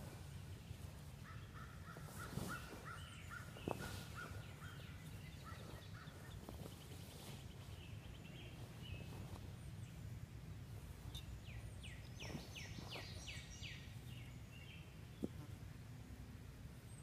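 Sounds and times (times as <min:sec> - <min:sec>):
bird chirping repeatedly: 0:00.3 - 0:10.1, 0:11.0 - 0:15.4
fainter higher bird chirps: 0:11.0 - 0:15.3.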